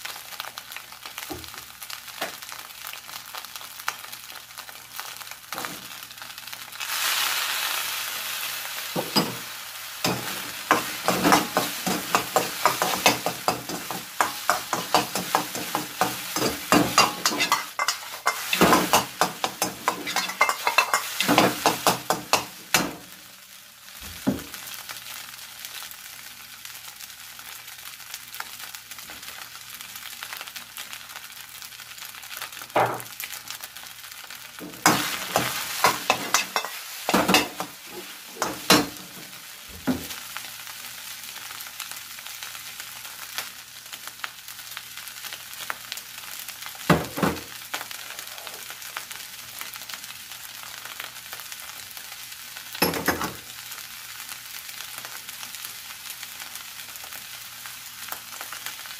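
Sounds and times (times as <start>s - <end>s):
rice and egg sizzling in a wok: 0.0s - 58.9s
ladle clattering against a wok: 10.1s - 22.9s.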